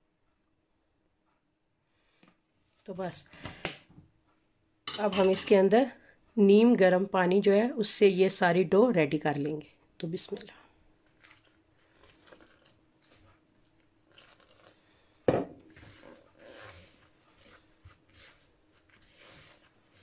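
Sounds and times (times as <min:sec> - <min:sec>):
glass knocking on wooden counter: 0:15.3 - 0:15.6
spatula scraping plastic bowl: 0:15.6 - 0:20.0.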